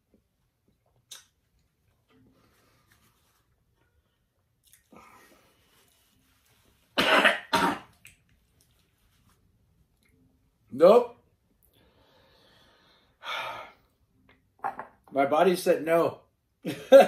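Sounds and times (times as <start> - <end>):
man coughing hard: 7.0 - 7.9.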